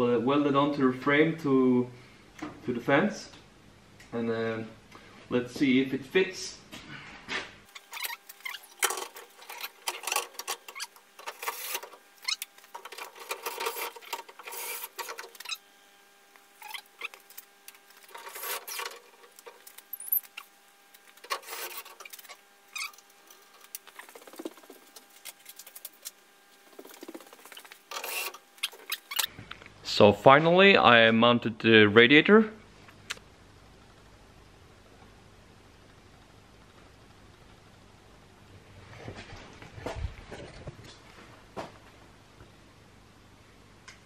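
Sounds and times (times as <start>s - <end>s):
faint steady hum: 0.0s - 44.0s
metal clattering and scraping: 12.7s - 15.4s, 18.0s - 20.4s.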